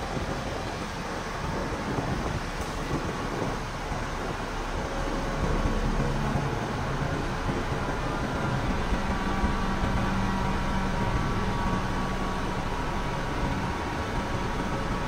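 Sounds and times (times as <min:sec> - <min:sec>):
diesel engine low hum: 0:00.0 - 0:15.0.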